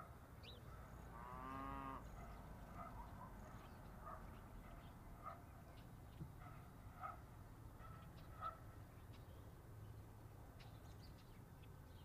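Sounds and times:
cow mooing: 1.2 - 2.1.

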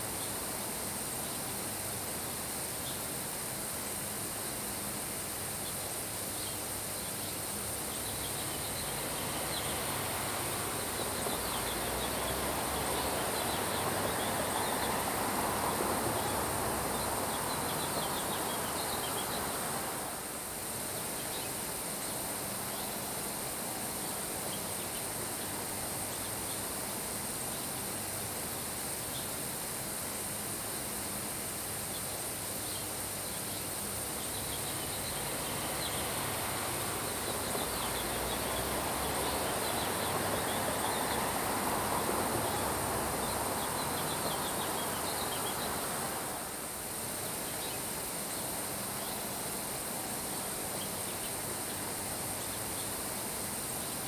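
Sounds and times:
wind: 0.0 - 54.0
rain falling on grass: 5.9 - 26.0, 31.5 - 54.0.

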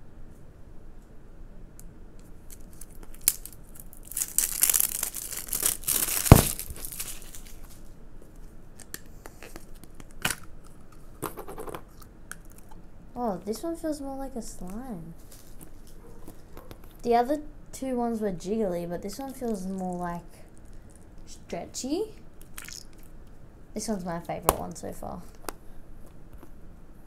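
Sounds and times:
plastic wrapping tearing: 2.5 - 7.8.

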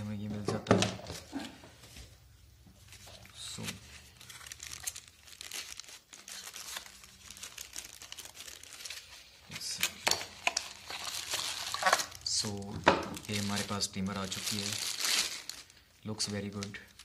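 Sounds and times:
plastic wrapping crinkling: 2.8 - 17.0.

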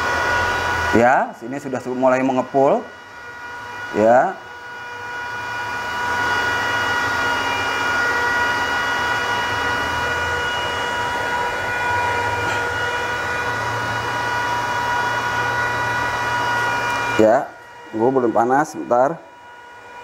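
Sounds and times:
induction heater electrical whine: 0.0 - 20.0.

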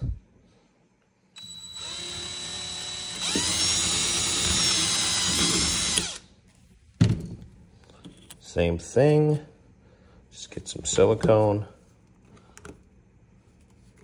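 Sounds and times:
cordless drill drilling: 1.4 - 6.2.

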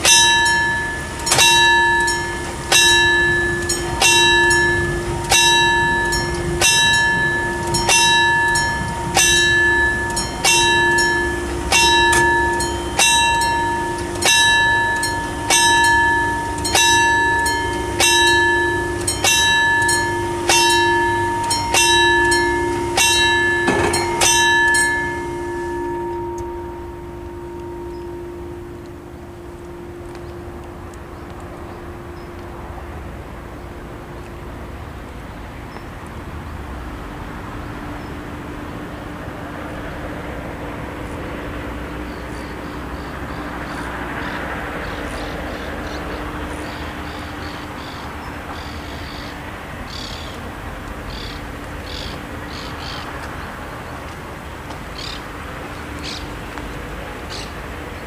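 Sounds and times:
level crossing bell ringing: 0.0 - 35.6.

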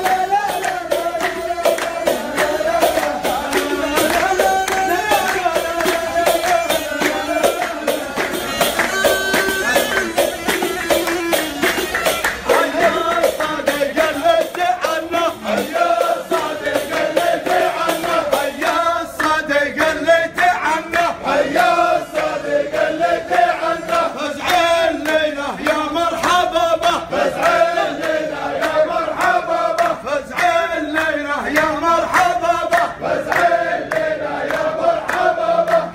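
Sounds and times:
hand clapping: 0.0 - 35.9
men singing a chant: 0.0 - 35.9
percussion: 0.0 - 35.9
flute melody: 6.0 - 12.8.

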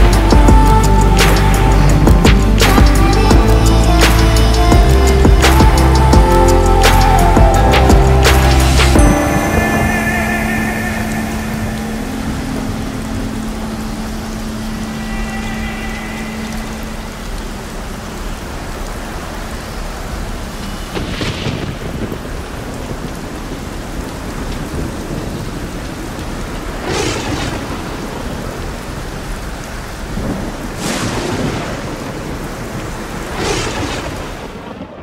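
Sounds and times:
thunder claps: 0.0 - 13.2, 20.9 - 28.9, 30.1 - 35.0
steady rain: 0.0 - 35.0.

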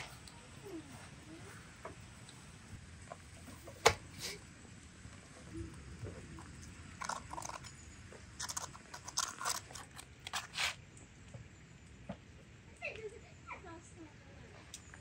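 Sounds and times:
fork scraping crunchy flatbread: 6.9 - 10.8.

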